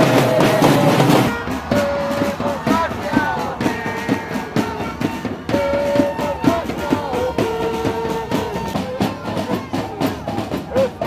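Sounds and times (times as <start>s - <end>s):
music with regular beat: 0.0s - 11.0s.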